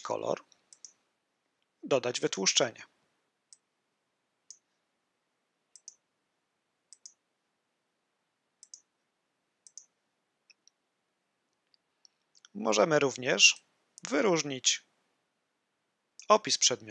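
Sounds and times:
computer mouse clicks: 0.5s - 1.0s, 5.7s - 6.0s, 6.9s - 7.2s, 8.6s - 8.9s, 9.6s - 9.9s.

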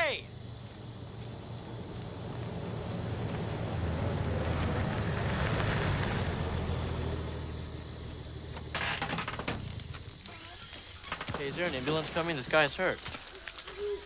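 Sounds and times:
truck engine running: 0.6s - 5.3s
truck door clattering open: 8.6s - 10.1s.

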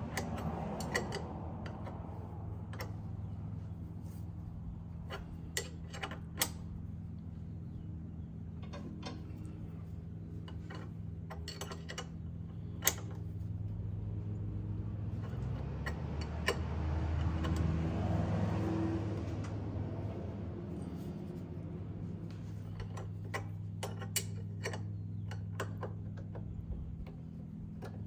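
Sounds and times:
metallic clicks of hand tools: 0.0s - 3.0s, 10.4s - 13.3s, 15.2s - 18.3s, 22.6s - 27.2s
steady low hum: 0.0s - 28.0s.

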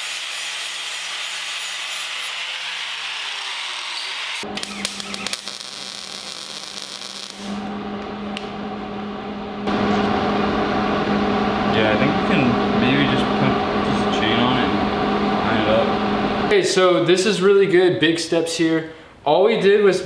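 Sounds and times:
angle grinder grinding steel: 0.0s - 7.6s
welder crackling: 0.0s - 8.5s
steady low hum: 4.4s - 17.4s.

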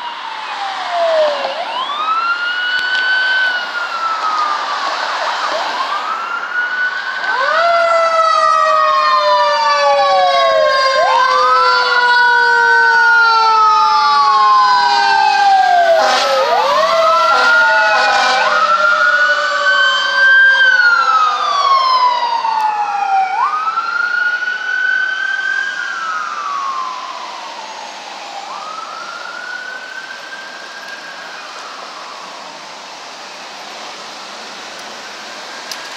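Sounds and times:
sirens wailing: 0.0s - 35.9s
short siren blasts: 7.3s - 23.6s.

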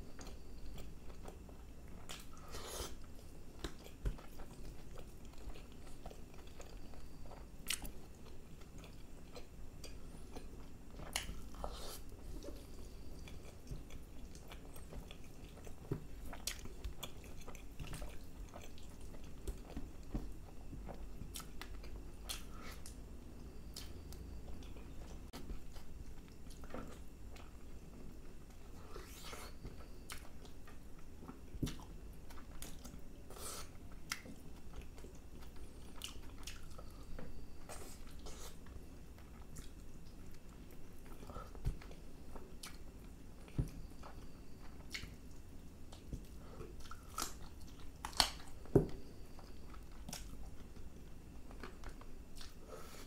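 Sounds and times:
person chewing food: 0.1s - 53.0s.

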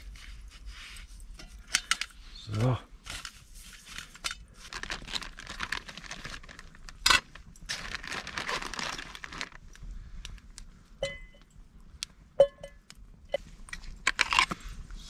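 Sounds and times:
plastic bag rustling and crinkling: 3.0s - 10.5s.

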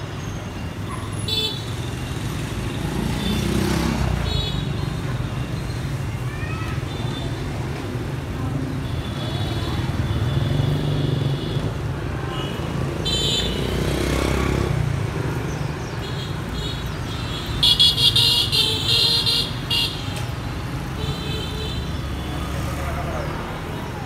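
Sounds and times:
street traffic: 0.0s - 24.0s
vehicle horns beeping: 12.3s - 13.8s, 16.2s - 20.2s.

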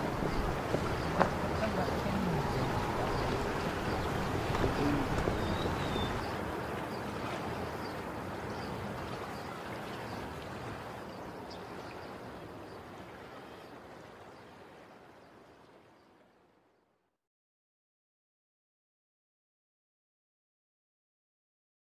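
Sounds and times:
sea noise: 0.0s - 16.9s.

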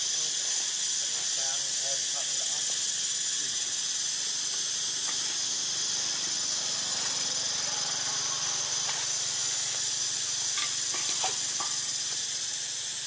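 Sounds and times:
insect chorus buzzing: 0.0s - 13.0s.

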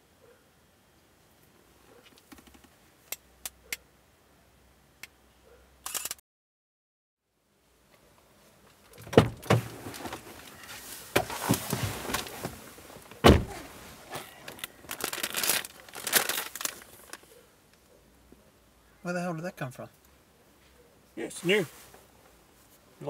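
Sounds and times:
chip packet crinkling: 14.5s - 17.2s
chips crunching: 14.6s - 17.2s.

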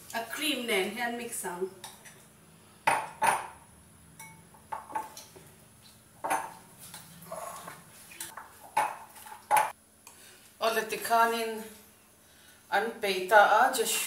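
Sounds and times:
spoon clinking glass bowl: 4.2s - 4.5s.

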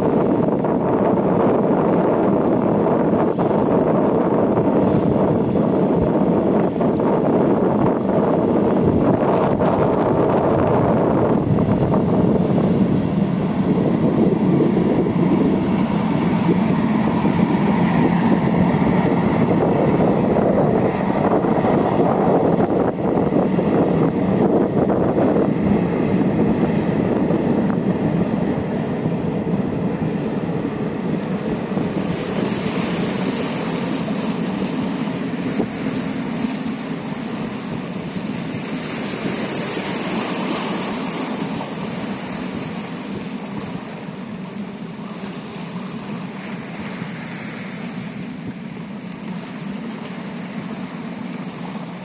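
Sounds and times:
boat turbines and water rushing: 0.0s - 52.0s
wind on microphone: 0.0s - 52.0s.

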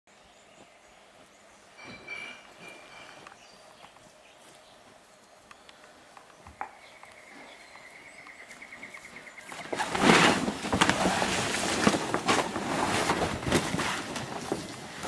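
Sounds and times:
tarpaulin rustling and crackling: 8.4s - 15.0s.

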